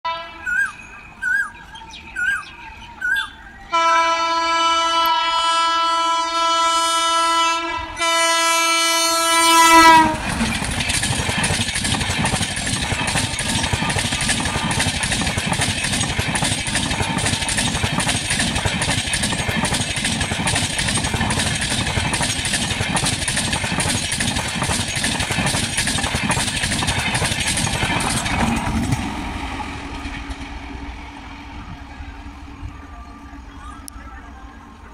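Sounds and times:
train horn blasts: 0.1 - 0.8, 3.7 - 10.5
train rushing past: 7.4 - 34.9
wheels clattering over rail joints: 9.5 - 31.1.

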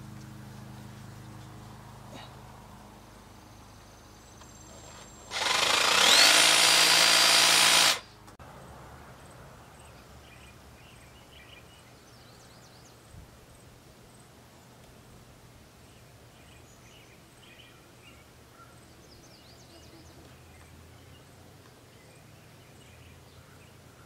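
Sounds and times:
power tool motor whining: 4.8 - 8.1.

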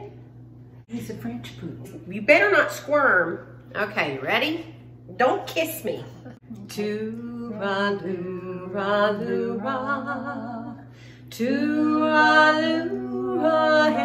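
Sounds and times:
women singing a cappella: 6.4 - 14.0.

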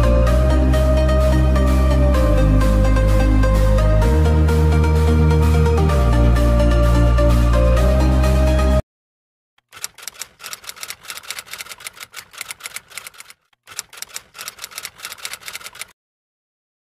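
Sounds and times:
typewriter key clacks: 9.6 - 15.9.

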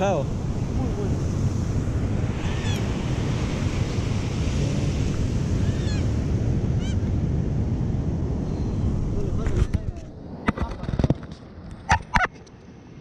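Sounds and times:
surf washing onto beach: 0.0 - 11.0
wind buffeting microphone: 0.0 - 12.3.

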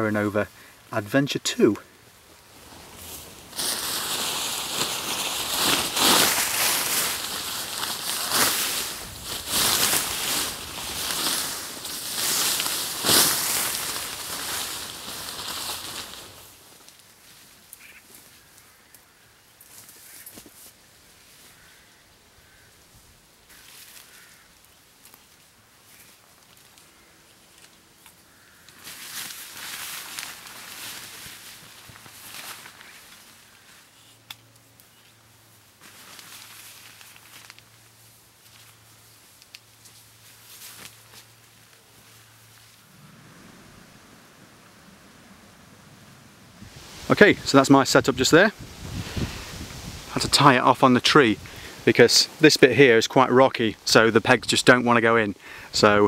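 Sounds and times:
tarp rustling and flapping: 2.5 - 17.0, 28.8 - 33.5, 35.8 - 37.7, 40.2 - 43.6, 46.5 - 52.5.

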